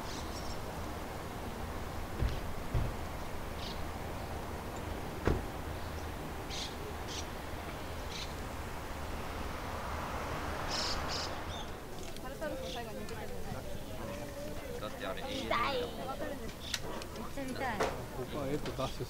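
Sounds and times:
steady low hum: 0.0 - 12.2
birds chirping: 0.0 - 19.0.

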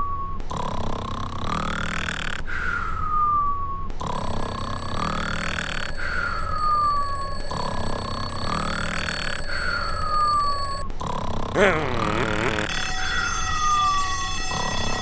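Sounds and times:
cartoon snoring: 0.5 - 2.7, 4.0 - 12.8
falling whistle: 12.5 - 15.0.

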